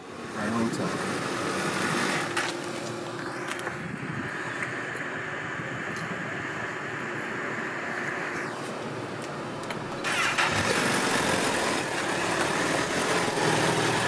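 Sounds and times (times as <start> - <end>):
steady engine noise: 0.0 - 14.0
vehicle engine starting: 9.8 - 14.0.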